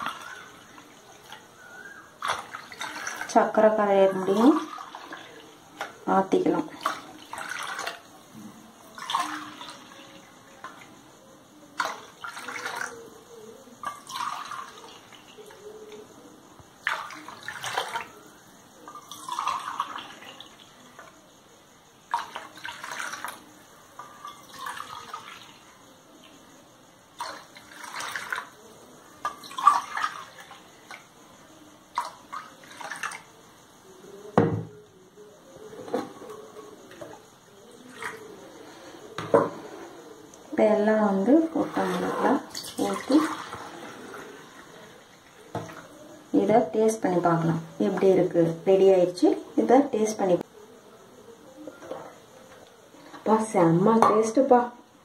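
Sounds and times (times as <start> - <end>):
liquid pouring into metal bowl: 0.0 - 11.0, 11.7 - 13.1, 13.8 - 16.0, 16.8 - 21.2, 22.1 - 25.7, 27.2 - 31.1, 31.9 - 33.3, 41.1 - 46.2.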